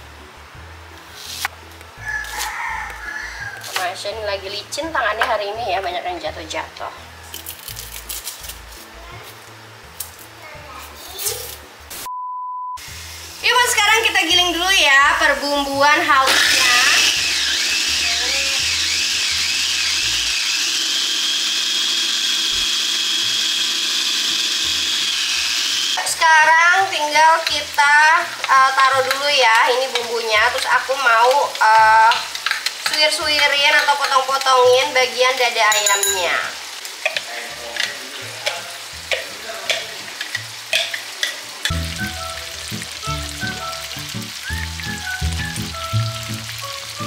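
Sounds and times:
chicken skin sizzling in oil: 1.2 - 4.0, 12.8 - 47.0
electric blender whining: 16.2 - 26.1
sharp pops of frying fat: 31.3 - 34.5, 36.9 - 41.8
background music with bass: 41.7 - 47.0.

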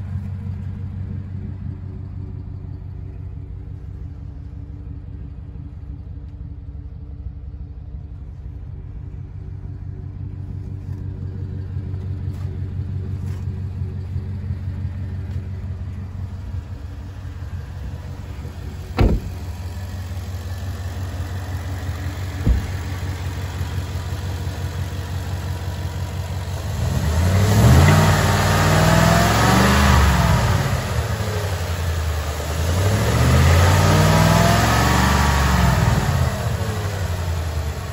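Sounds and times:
pickup engine idling: 0.0 - 37.9
engine revving: 22.1 - 24.0, 26.0 - 37.9
sharp knocks: 22.4 - 22.8.

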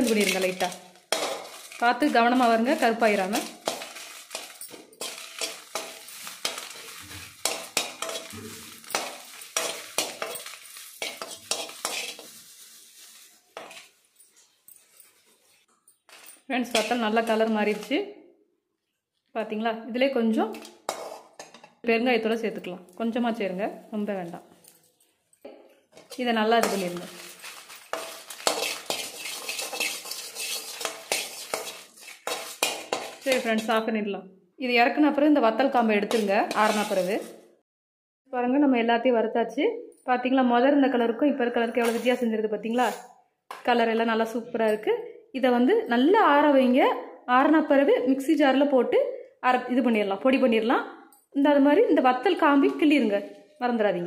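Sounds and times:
spatula scraping metal pan: 0.0 - 17.9, 20.5 - 21.7, 25.9 - 33.8, 36.0 - 37.4, 42.7 - 43.1
faint oil sizzle: 0.1 - 15.7, 26.0 - 33.5.

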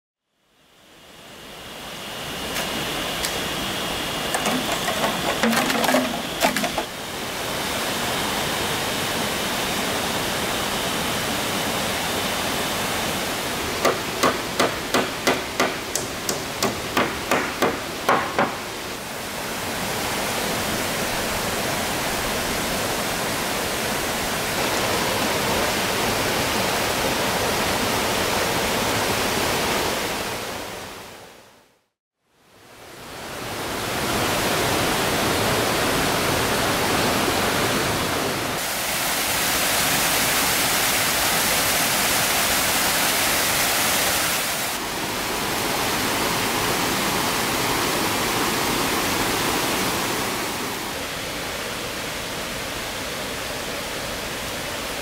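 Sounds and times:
hammer driving nails into wood: 13.8 - 18.6
stream rushing over rocks: 18.6 - 31.0, 33.1 - 55.0.

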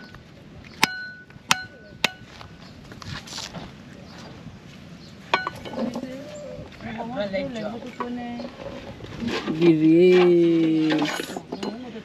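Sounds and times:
machete chopping coconut: 0.8 - 2.3.

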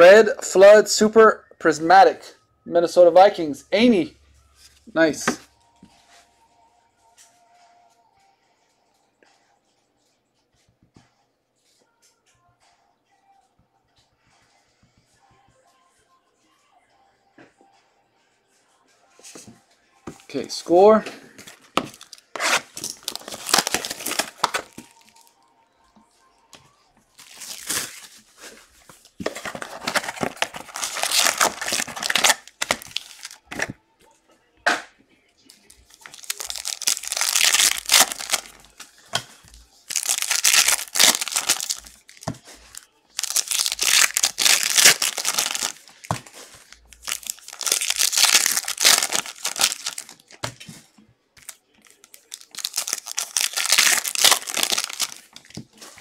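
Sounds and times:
plastic wrappers crinkling and tearing: 21.3 - 25.4, 27.1 - 33.8, 35.5 - 50.6, 51.4 - 56.0.

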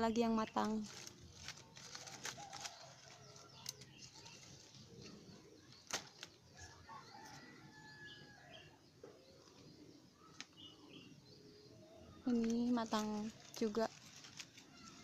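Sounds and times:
faint bird chirps: 3.4 - 13.8
fruit stem snapping: 5.9 - 6.3.

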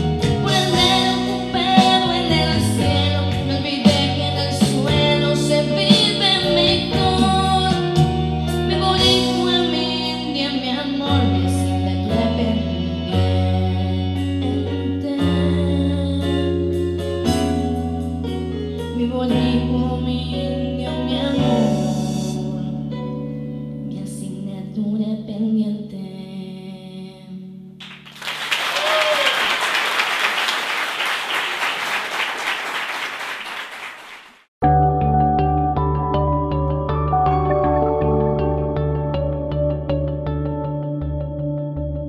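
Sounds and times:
girl singing: 0.0 - 16.7, 18.9 - 22.6, 23.8 - 27.6
audience applauding: 27.8 - 34.5.

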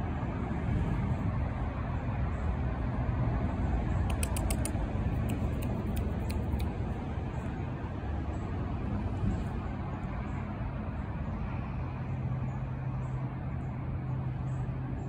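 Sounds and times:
low outdoor rumble: 0.0 - 15.0
short crisp clicks: 4.1 - 6.8.

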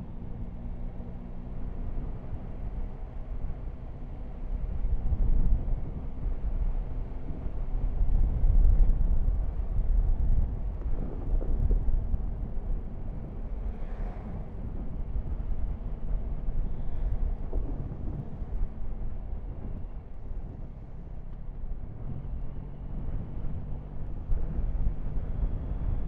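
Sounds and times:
motorcycle engine drone: 0.0 - 26.0
wind noise on microphone: 1.5 - 26.0.

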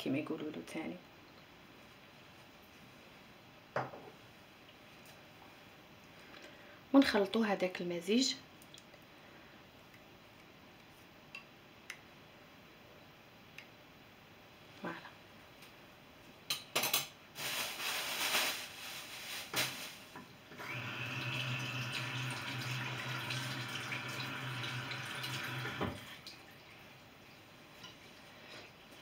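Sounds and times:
low hum in pipes: 20.5 - 27.0
water running from a tap: 20.6 - 26.8.

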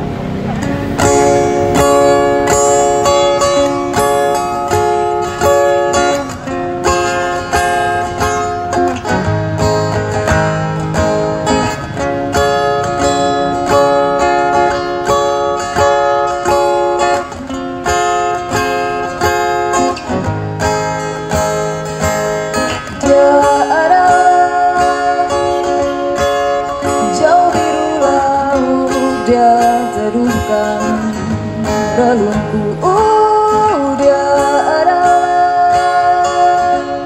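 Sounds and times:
acoustic guitar strumming chords: 0.0 - 37.0
woman singing: 23.0 - 26.1, 26.8 - 37.0.

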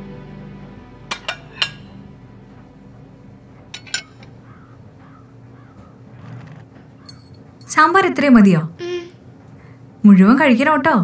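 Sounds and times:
dishes clinking: 1.1 - 2.0, 3.7 - 4.3, 7.0 - 7.6.

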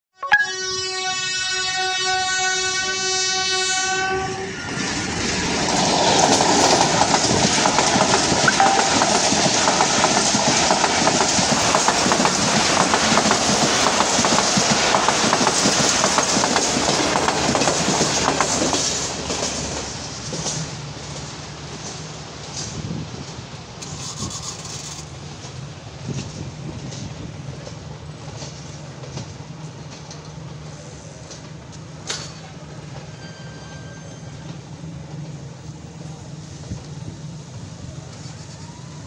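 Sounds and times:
train horn blowing: 0.4 - 4.8
train wheels clattering: 5.5 - 30.4.

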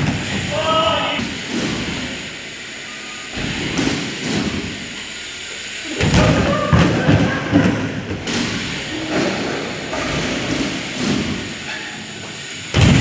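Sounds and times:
heavy thuds and metal clatter: 6.0 - 13.0
body and bike hitting ramp: 12.7 - 13.0.

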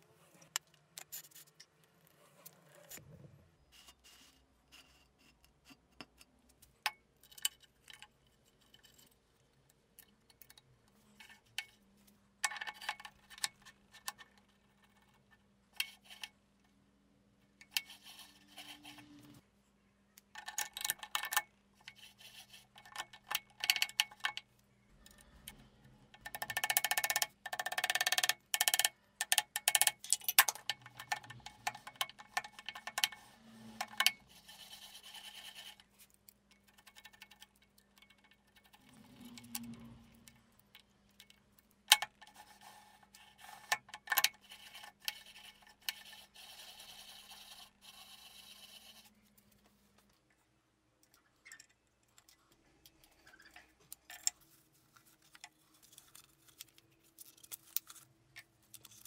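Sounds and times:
small steel parts clinking and scraping: 7.2 - 9.4, 51.1 - 59.0.

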